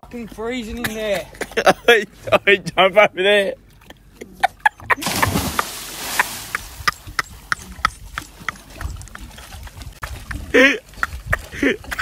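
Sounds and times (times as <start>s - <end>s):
water sloshing: 3.6s - 12.0s
loud splash into water: 5.0s - 6.8s.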